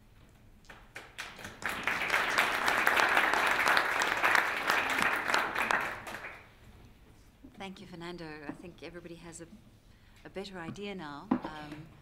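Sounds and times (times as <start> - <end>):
audience applauding: 0.7 - 6.5.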